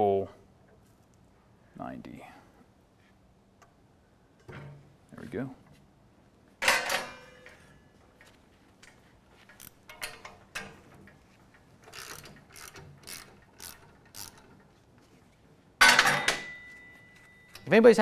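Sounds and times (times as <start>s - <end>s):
light metallic clicks and rattles: 6.6s - 15.1s
loud metal clang ringing: 15.8s - 17.5s.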